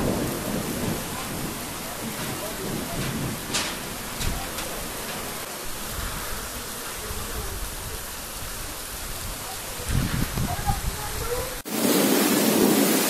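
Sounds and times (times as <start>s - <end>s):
low bumps: 0.0s - 7.5s
heavy rain pouring: 0.0s - 13.0s.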